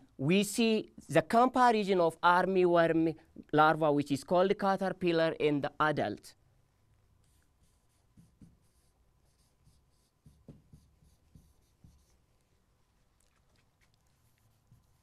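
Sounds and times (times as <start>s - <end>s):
pen scratching on whiteboard: 7.2s - 12.2s, 14.1s - 15.0s
pen tapping on board: 8.1s - 8.8s, 10.2s - 12.1s.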